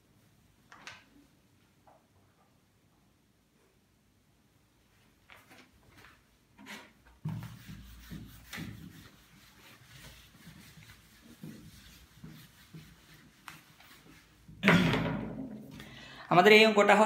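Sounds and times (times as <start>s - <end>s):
eraser wiping whiteboard: 6.6s - 14.6s.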